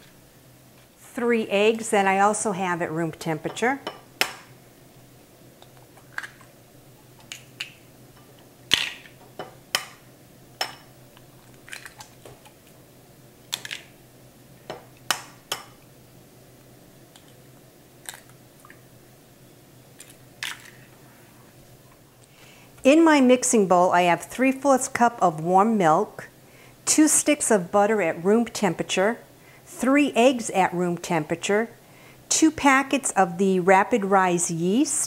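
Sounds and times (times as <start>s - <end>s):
eggs cracking against metal bowl: 5.6s - 6.5s, 8.7s - 10.0s, 10.6s - 12.5s, 13.5s - 14.0s, 20.0s - 20.9s.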